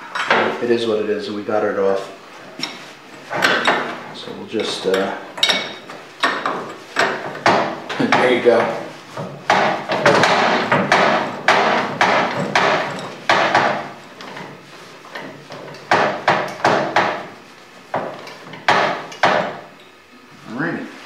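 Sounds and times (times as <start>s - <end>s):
metal wrench clanking: 2.6s - 8.8s.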